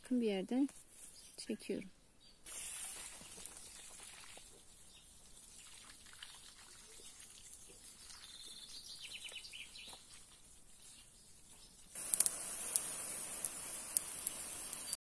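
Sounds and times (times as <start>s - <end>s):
bird chirping: 1.1s - 2.5s, 6.9s - 12.0s
hiss with sharp crackles: 2.4s - 6.2s, 9.2s - 15.0s
ticks and rustles of seedlings: 2.6s - 15.0s.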